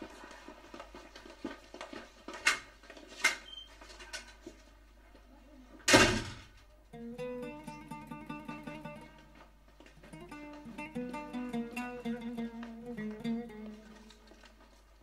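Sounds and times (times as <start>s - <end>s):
footsteps in hallway: 0.0s - 5.3s, 8.6s - 15.0s
door banging shut: 5.9s - 6.6s
acoustic guitar music: 6.9s - 14.6s.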